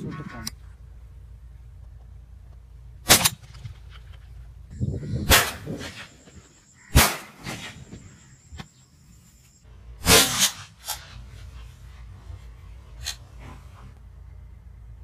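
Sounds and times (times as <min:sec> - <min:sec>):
hunting gun shots: 0:03.0 - 0:03.8, 0:05.2 - 0:08.3, 0:10.0 - 0:11.0.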